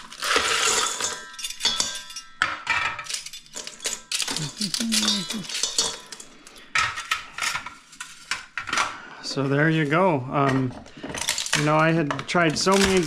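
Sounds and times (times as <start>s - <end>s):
ice cubes clattering into bowl: 0.0s - 8.9s, 9.6s - 13.0s
metal tray clinks and rattles: 0.0s - 8.9s, 9.7s - 13.0s.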